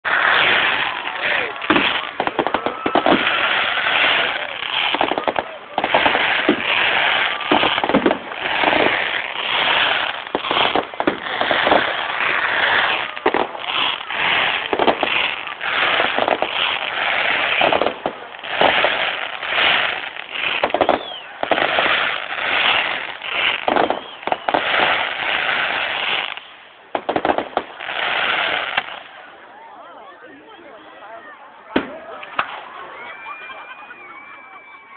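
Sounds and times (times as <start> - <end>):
fireworks crackling and popping: 0.0 - 29.4, 31.7 - 34.9.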